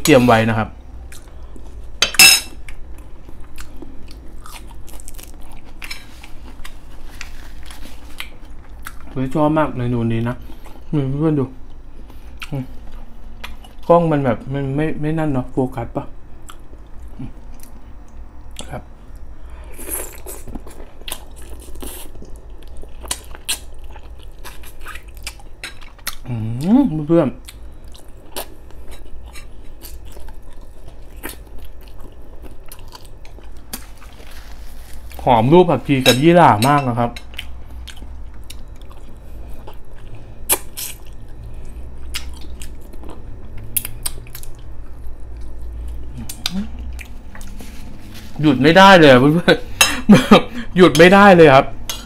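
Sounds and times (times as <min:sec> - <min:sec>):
low steady hum: 0:00.0 - 0:52.0
person chewing with wet mouth clicks: 0:42.0 - 0:47.5.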